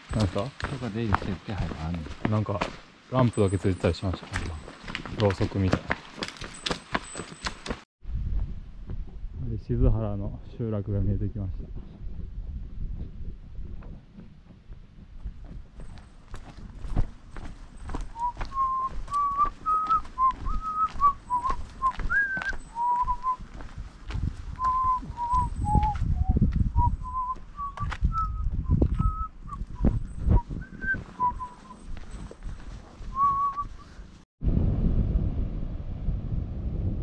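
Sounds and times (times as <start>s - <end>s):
footsteps: 0.0s - 9.2s, 11.7s - 34.2s
wind rumbling on microphone: 8.0s - 37.0s
person whistling a tune: 18.1s - 23.4s, 24.6s - 31.9s, 33.1s - 33.9s.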